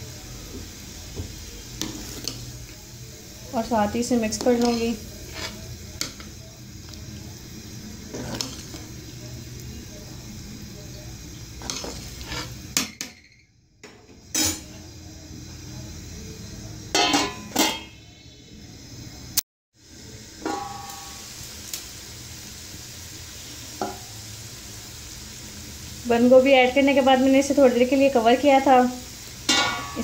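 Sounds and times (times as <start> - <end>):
steady hiss: 0.0 - 12.8, 18.2 - 30.0
metal spoon clinking against pot: 16.9 - 18.0, 29.5 - 30.0
pot lid clanking: 16.9 - 18.0, 20.4 - 21.1, 29.5 - 30.0.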